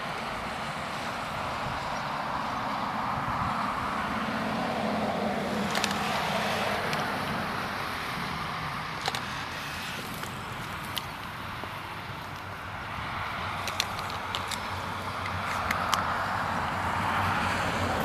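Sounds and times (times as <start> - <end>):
car passing: 0.0 - 18.0
sharp clicks: 5.6 - 6.2, 8.9 - 11.4, 13.5 - 16.2.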